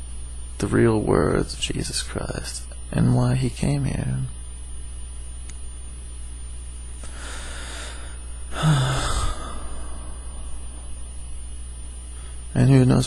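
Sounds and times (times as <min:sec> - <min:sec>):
low electrical hum: 0:00.0 - 0:13.0
man breathing: 0:07.0 - 0:11.4, 0:12.0 - 0:12.5.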